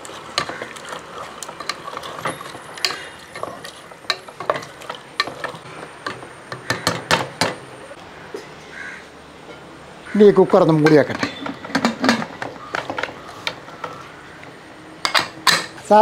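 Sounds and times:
spatula scraping and knocking pot: 0.0s - 7.7s.

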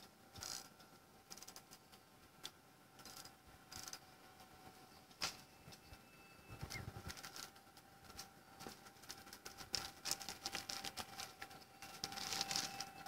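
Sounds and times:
faint steady high tone: 4.1s - 7.3s, 11.0s - 13.0s
clicks and rustles of movement: 6.6s - 13.0s.

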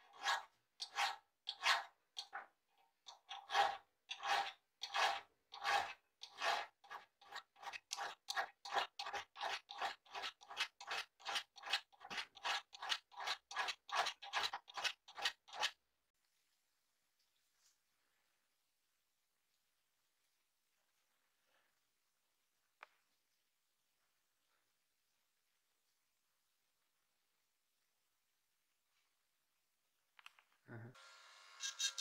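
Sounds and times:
hand file rasping on steel: 0.0s - 2.4s, 3.1s - 15.8s.

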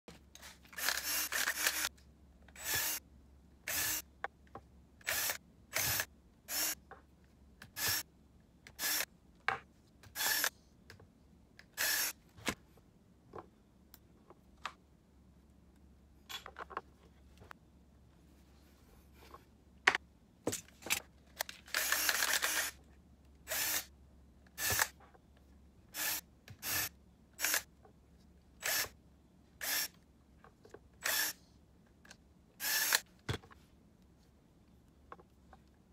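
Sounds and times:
drill driving screws whirring: 0.7s - 1.9s, 2.6s - 3.0s, 3.7s - 4.1s, 5.0s - 6.8s, 7.8s - 8.0s, 8.8s - 9.1s, 10.1s - 10.5s, 11.8s - 12.2s, 21.7s - 22.8s, 23.5s - 23.9s, 24.6s - 25.0s, 26.0s - 27.7s, 28.6s - 29.0s, 29.6s - 30.0s, 31.0s - 31.4s, 32.6s - 33.0s.

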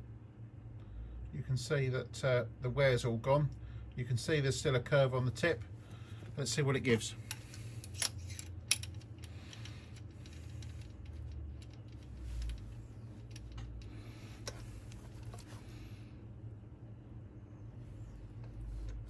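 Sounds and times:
steady low hum: 0.0s - 19.0s
small metallic clicks and clinks: 7.3s - 14.6s.

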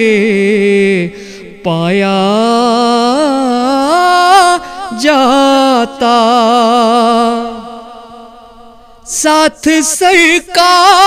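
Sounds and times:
man singing with held notes: 0.0s - 11.0s.

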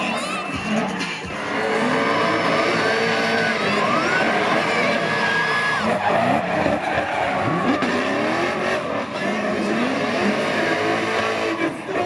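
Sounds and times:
car engines revving: 0.0s - 12.0s.

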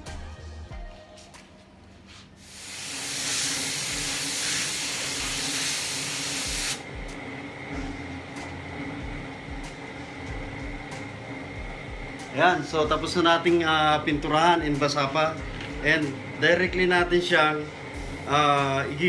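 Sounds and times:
spray gun air hiss: 2.4s - 6.8s.

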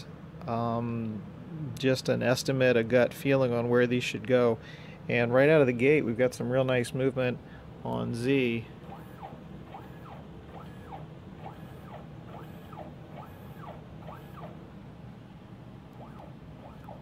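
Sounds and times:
low steady hum: 0.0s - 17.0s
stepper motor whine: 8.8s - 17.0s.

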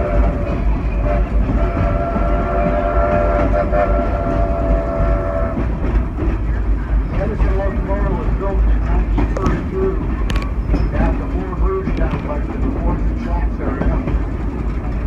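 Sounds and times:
steam locomotive whistle: 0.0s - 5.7s
train rumble: 0.0s - 15.0s.

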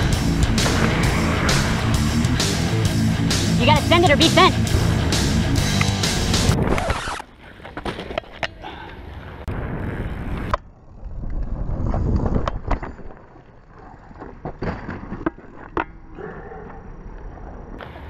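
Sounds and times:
bike tyres rumbling on gravel: 9.1s - 15.7s.

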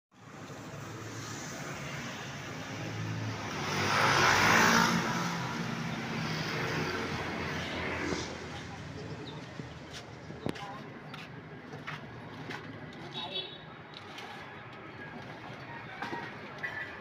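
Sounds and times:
traffic engine hum: 0.2s - 17.0s
vehicle passing close by: 1.1s - 8.9s.

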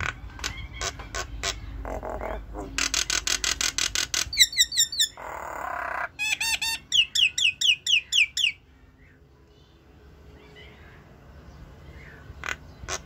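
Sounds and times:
myna calling: 0.0s - 8.6s, 12.0s - 13.0s.

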